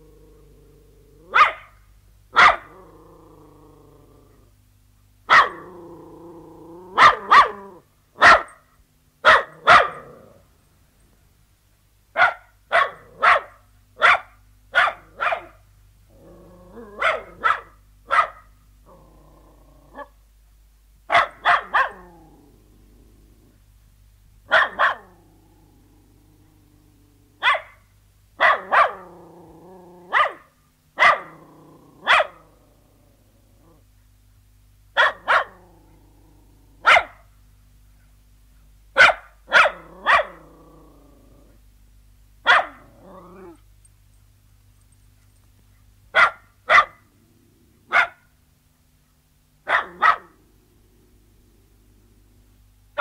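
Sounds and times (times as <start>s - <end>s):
dog growling: 0.0s - 1.4s, 2.6s - 4.5s, 5.5s - 7.8s, 9.5s - 10.5s, 16.1s - 17.5s, 18.8s - 20.1s, 21.6s - 23.6s, 24.6s - 27.4s, 28.6s - 30.4s, 31.2s - 33.9s, 35.1s - 36.9s, 39.7s - 41.6s, 42.7s - 43.6s, 47.0s - 48.1s
dog barking: 1.3s - 1.8s, 2.4s - 2.7s, 5.3s - 5.6s, 7.0s - 7.6s, 8.2s - 8.6s, 9.2s - 10.0s, 12.2s - 15.6s, 17.0s - 18.5s, 21.1s - 22.0s, 24.5s - 25.1s, 27.4s - 27.8s, 28.4s - 29.0s, 30.1s - 31.4s, 32.0s - 32.4s, 35.0s - 35.6s, 36.8s - 37.3s, 39.0s - 40.4s, 42.5s - 42.9s, 46.2s - 47.1s, 47.9s - 48.3s, 49.6s - 50.4s.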